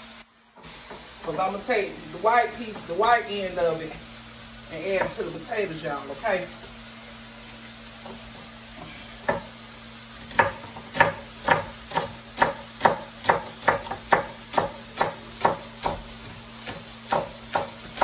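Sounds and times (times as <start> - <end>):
knife chopping on wooden board: 9.2 - 9.5, 10.2 - 18.0.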